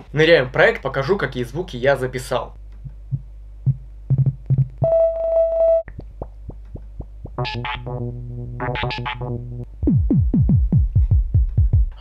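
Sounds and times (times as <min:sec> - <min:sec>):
light ticking beat: 0:02.8 - 0:05.3, 0:05.9 - 0:12.0
synthesizer tones: 0:07.0 - 0:10.8.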